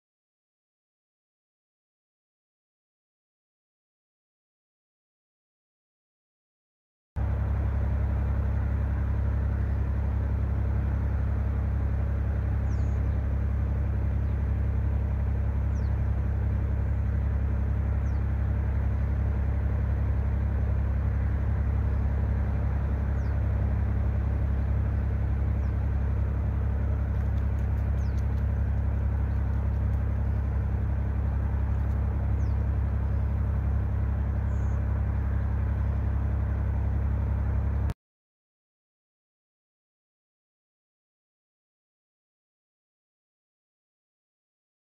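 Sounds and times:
low mechanical hum: 0:07.2 - 0:38.0.

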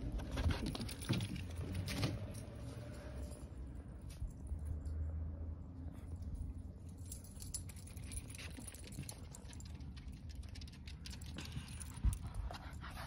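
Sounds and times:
dog paws pattering on deck: 0:08.0 - 0:12.9.

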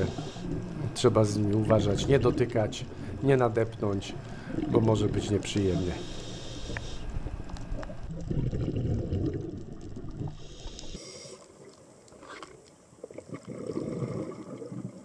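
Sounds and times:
underwater bubbles gurgling: 0:00.0 - 0:15.0.

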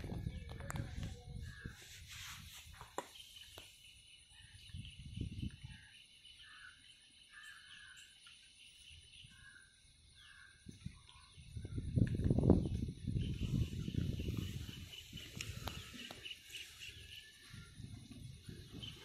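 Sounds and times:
insect drone: 0:01.1 - 0:19.0
short bird calls: 0:13.3 - 0:17.9.

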